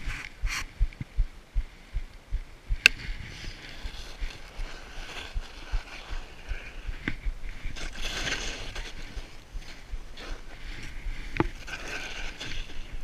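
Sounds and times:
wind buffeting microphone: 0:00.0 - 0:13.0
skis hissing through snow: 0:03.0 - 0:13.0.

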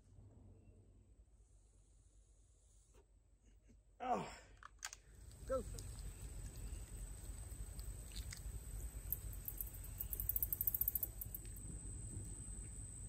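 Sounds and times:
low rumble of wind: 0:05.1 - 0:13.0
high insect chirps: 0:05.2 - 0:13.0
high-pitched insect whine: 0:05.5 - 0:13.0.

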